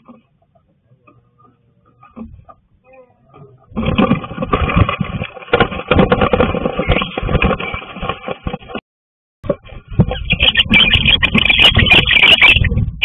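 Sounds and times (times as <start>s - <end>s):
wings beating: 3.7s - 8.8s.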